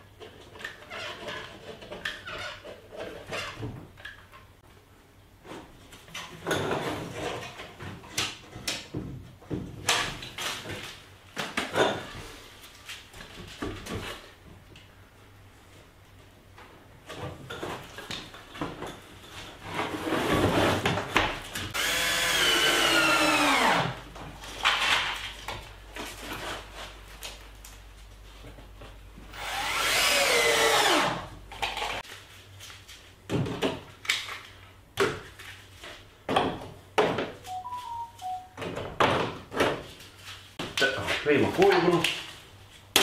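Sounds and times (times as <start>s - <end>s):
electric drill driving screws: 21.8s - 24.0s, 29.4s - 31.3s.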